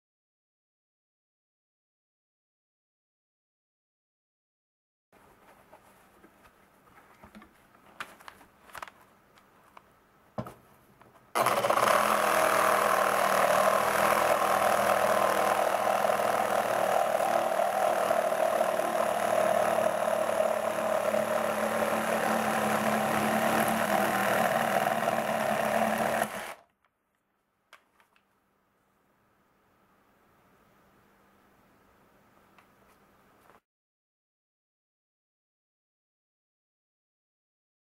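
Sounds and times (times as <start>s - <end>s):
reciprocating saw cutting wood: 11.4s - 26.6s.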